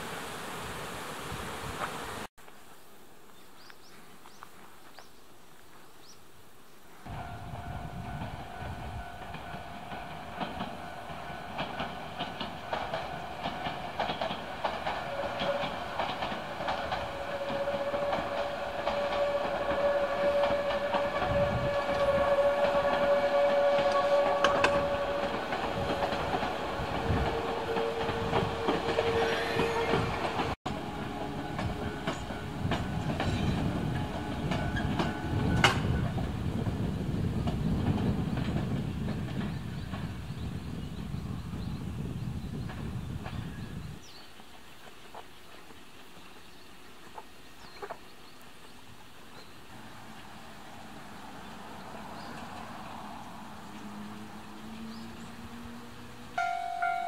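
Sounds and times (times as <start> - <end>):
train running past: 7.1 - 43.7, 49.2 - 57.0
wheel clacks over rail joints: 9.2 - 36.3.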